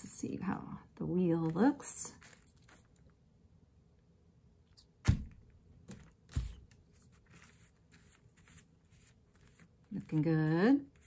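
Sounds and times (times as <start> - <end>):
faint handling noise: 0.9 - 3.3.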